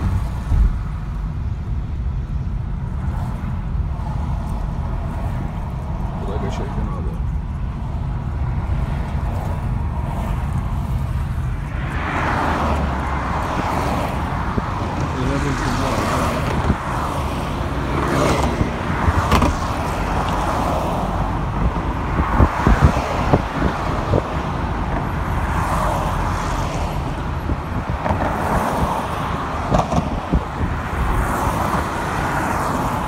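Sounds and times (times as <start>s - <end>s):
tyre and engine rumble: 0.0s - 33.0s.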